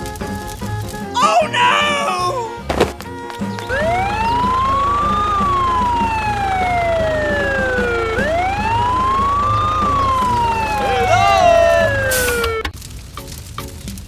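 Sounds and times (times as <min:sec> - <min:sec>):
emergency siren wailing: 0:03.7 - 0:12.7.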